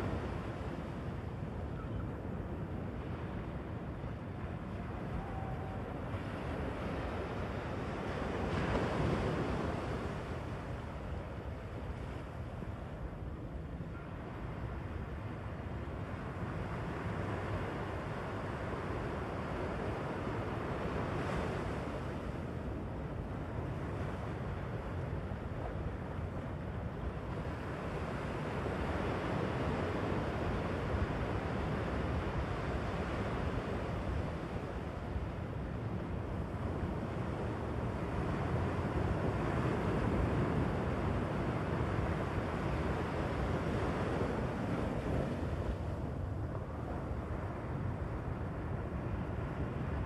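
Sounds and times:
ocean surf breaking on beach: 0:04.8 - 0:11.2, 0:23.4 - 0:50.0.

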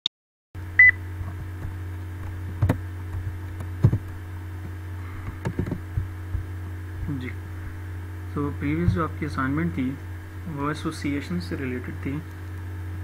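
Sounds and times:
low electrical hum: 0:00.6 - 0:13.0.

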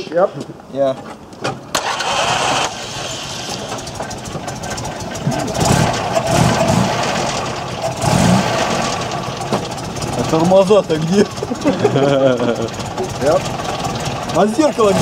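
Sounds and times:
car engine starting and idling: 0:01.3 - 0:15.0
voices: 0:10.0 - 0:15.0.

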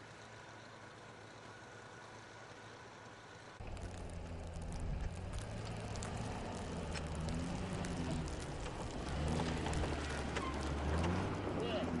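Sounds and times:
truck engine running at low revs: 0:00.0 - 0:12.0
snow crunching under plow: 0:00.1 - 0:12.0.

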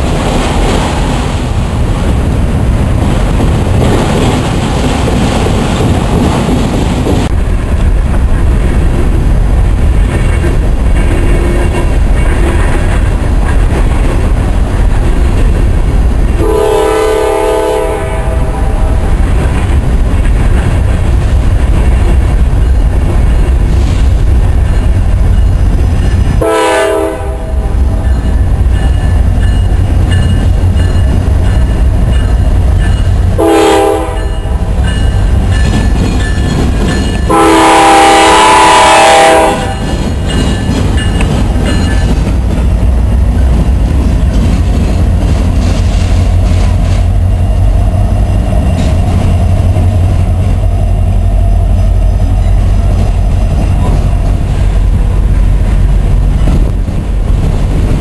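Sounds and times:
locomotives rumbling past: 0:00.0 - 0:58.0
locomotive air horn blasts: 0:16.4 - 0:18.8, 0:26.4 - 0:27.7, 0:33.4 - 0:34.3, 0:37.3 - 0:39.8
train trailers clattering on rails: 0:27.9 - 0:33.4, 0:34.0 - 0:38.1, 0:39.1 - 0:47.2.

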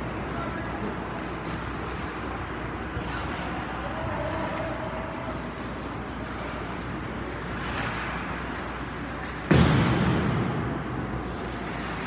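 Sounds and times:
ice rink noise: 0:00.0 - 0:12.0
ice rink boards banging: 0:09.3 - 0:10.9.

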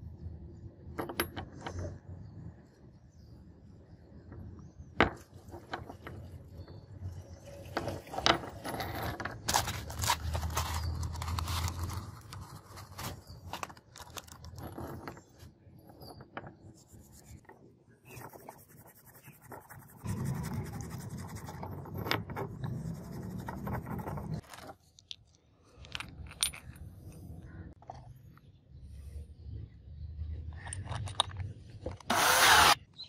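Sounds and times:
metal pieces clinking: 0:25.8 - 0:26.9.

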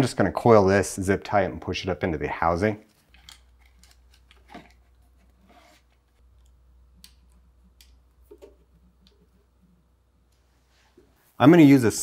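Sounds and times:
low steady hum: 0:00.0 - 0:12.0
wire handling clicks and knocks: 0:02.9 - 0:09.4.

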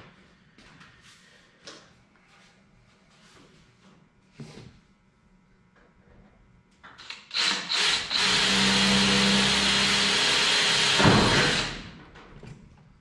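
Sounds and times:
cordless drill boring through metal: 0:07.0 - 0:11.9.

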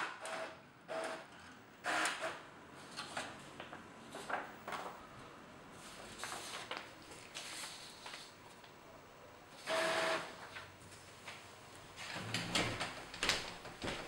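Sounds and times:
inkjet printer printing a page: 0:00.1 - 0:02.4, 0:09.6 - 0:10.7
paper sheets rustling: 0:02.9 - 0:05.0, 0:05.8 - 0:08.8.

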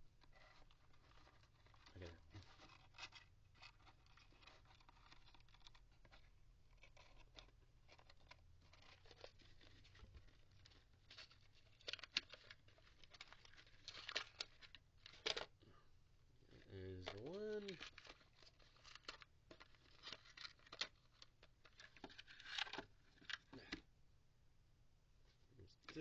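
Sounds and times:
rustling and scratching packaging: 0:00.0 - 0:15.6, 0:16.4 - 0:23.9.

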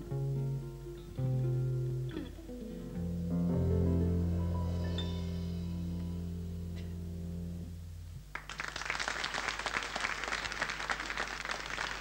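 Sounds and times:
jazz band final chord: 0:01.2 - 0:08.0
audience applause: 0:08.3 - 0:12.0.

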